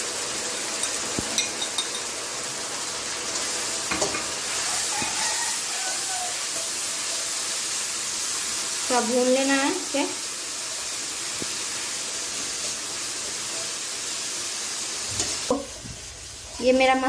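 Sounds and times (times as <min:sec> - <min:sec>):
onion sizzling in hot oil: 0:00.0 - 0:17.0
metal spatula knocking pan: 0:00.8 - 0:02.1.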